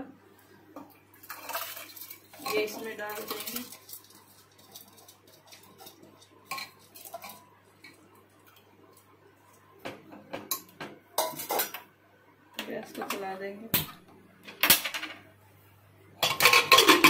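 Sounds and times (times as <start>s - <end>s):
steel bowl scraping metal rim: 16.2s - 17.0s.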